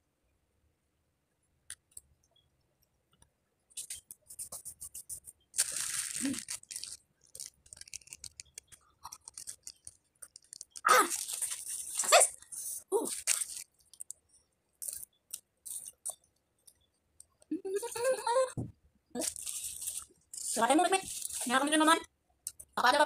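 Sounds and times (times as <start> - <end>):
crunchy wet chewing: 5.6 - 12.1, 13.1 - 14.2.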